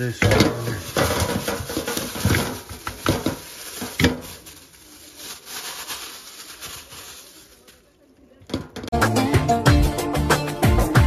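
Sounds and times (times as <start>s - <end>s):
plastic bag crinkling: 0.1s - 8.3s.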